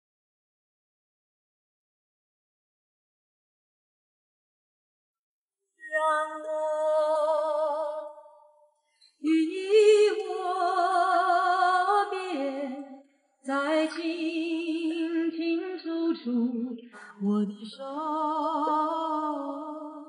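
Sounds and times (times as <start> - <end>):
woman singing with vibrato: 5.8 - 8.4, 9.2 - 12.9, 13.5 - 20.0.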